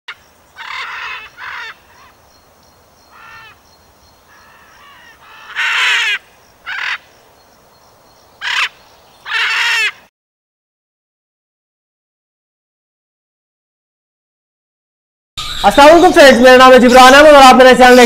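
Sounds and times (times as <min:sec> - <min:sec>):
harsh raspy bird squawks: 0:00.6 - 0:02.2, 0:03.1 - 0:03.6, 0:04.3 - 0:07.1, 0:08.4 - 0:10.1.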